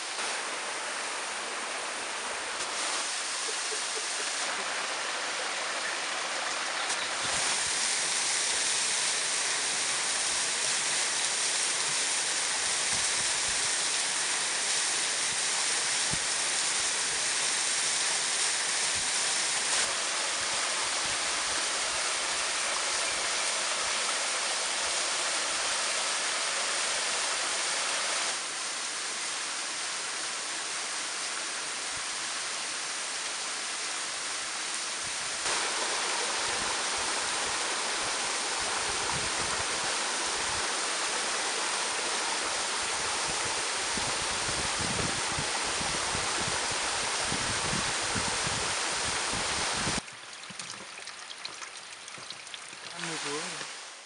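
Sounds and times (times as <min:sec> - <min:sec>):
water splashing over rocks: 0:02.6 - 0:16.5, 0:35.4 - 0:54.0.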